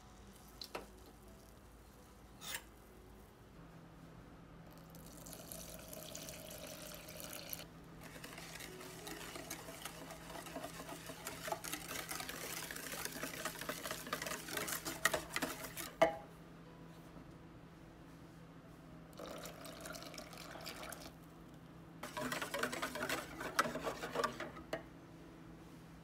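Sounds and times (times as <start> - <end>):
milk pouring into a bowl: 4.7 - 15.8, 19.2 - 21.2
whisk clinking against glass bowl: 8.1 - 16.2, 22.0 - 24.5.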